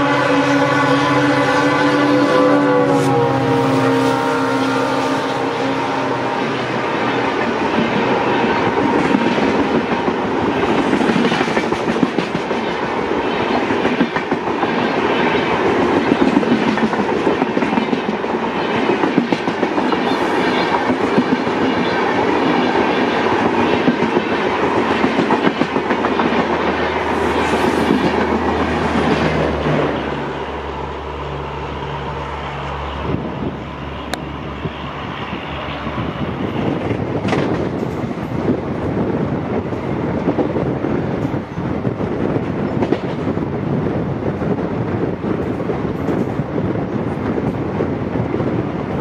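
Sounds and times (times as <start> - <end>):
train wheels clattering over rail joints: 36.6 - 38.6, 39.7 - 43.5.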